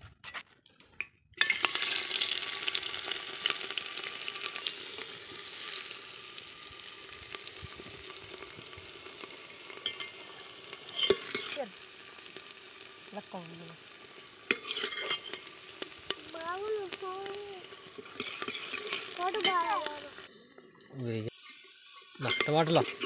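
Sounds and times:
onions sizzling in hot oil: 1.4 - 23.0
ladle clinking against pot: 22.2 - 23.0.

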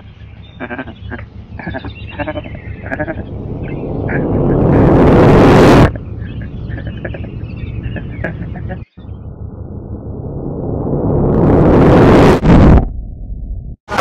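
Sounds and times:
wavering voice-like calls: 0.0 - 9.2
rush of noise: 0.0 - 14.0.

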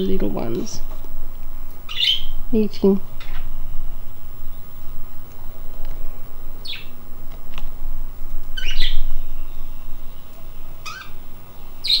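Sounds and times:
budgerigars chirping: 1.8 - 3.4, 6.6 - 7.0, 8.5 - 12.0.

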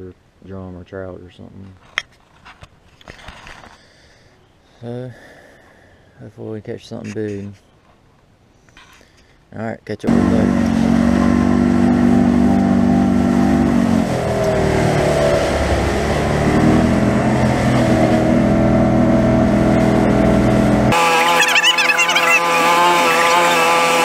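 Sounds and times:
boat engine running: 10.1 - 24.0.

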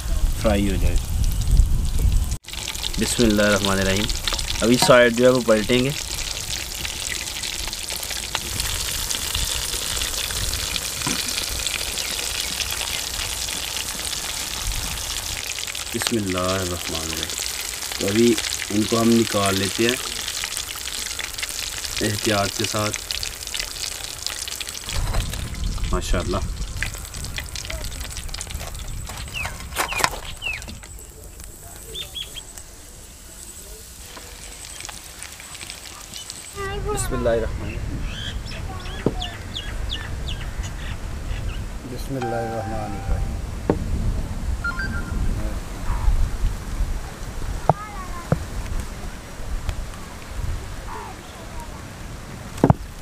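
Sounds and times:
chicken deep-frying in oil: 0.0 - 43.3, 45.8 - 51.8
birds chirping: 44.6 - 45.4.

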